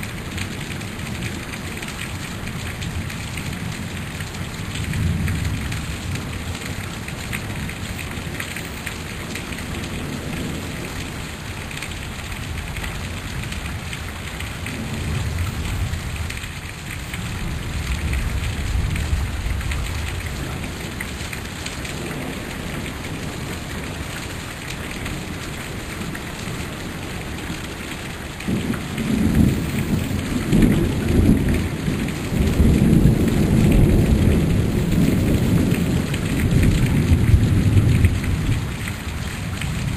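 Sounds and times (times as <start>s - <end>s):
heavy rain falling: 0.0s - 39.9s
thunder rumbling: 28.4s - 39.9s.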